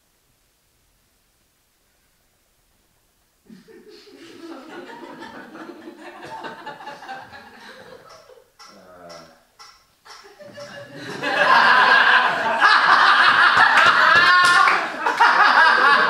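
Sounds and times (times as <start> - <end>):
audience laughter: 3.5 - 8.4, 10.2 - 16.0.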